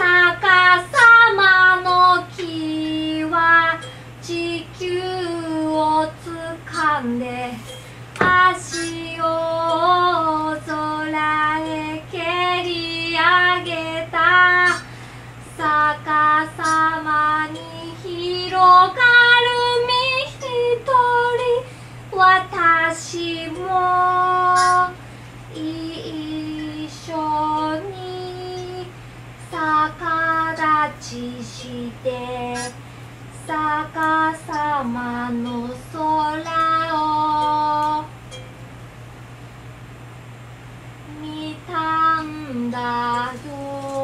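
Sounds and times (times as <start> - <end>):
woman singing slow melody: 0.0 - 38.2, 41.0 - 44.0
steady low hum: 0.0 - 44.0.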